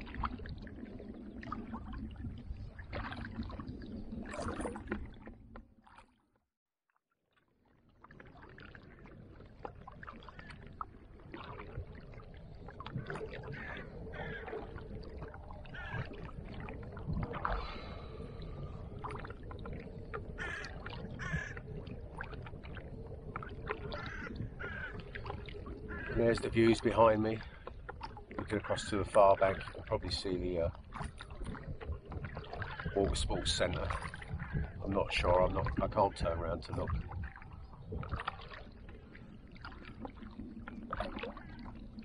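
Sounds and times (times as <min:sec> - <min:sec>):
paddle splashing in water: 0:00.0 - 0:06.2, 0:07.9 - 0:42.0
water lapping: 0:00.0 - 0:06.2, 0:07.7 - 0:42.0
wind on microphone: 0:12.8 - 0:26.3, 0:30.9 - 0:42.0.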